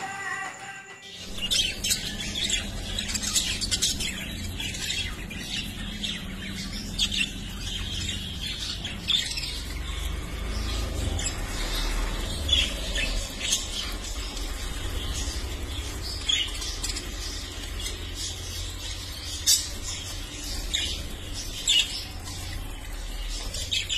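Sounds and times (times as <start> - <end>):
budgerigars chirping and squawking: 1.2 - 23.9.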